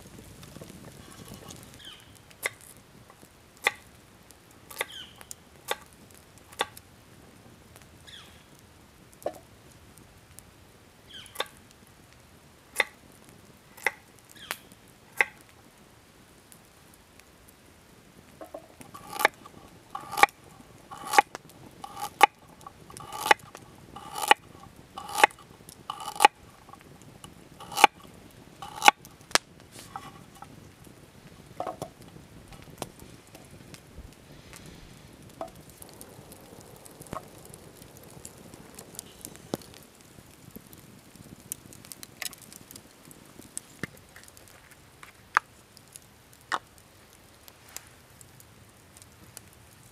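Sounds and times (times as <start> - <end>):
knife cutting on wooden board: 20.0 - 20.3, 20.9 - 21.2, 21.8 - 22.3, 23.0 - 23.4, 24.0 - 24.4, 25.0 - 26.4, 27.6 - 27.9.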